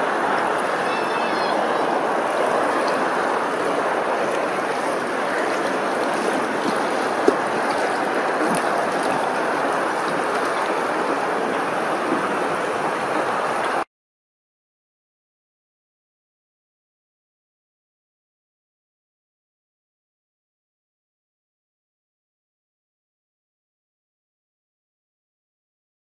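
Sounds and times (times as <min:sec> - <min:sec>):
water rushing: 0:00.0 - 0:13.9.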